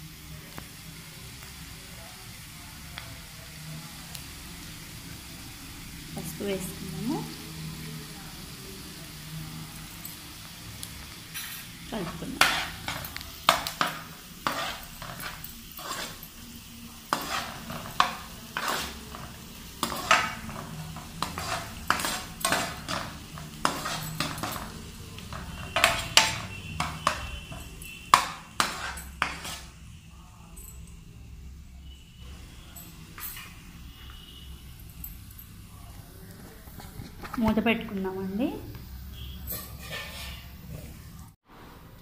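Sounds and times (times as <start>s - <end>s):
faint frying sizzle: 0.0s - 42.0s
spoon scraping frying pan: 11.1s - 29.9s, 38.7s - 41.1s.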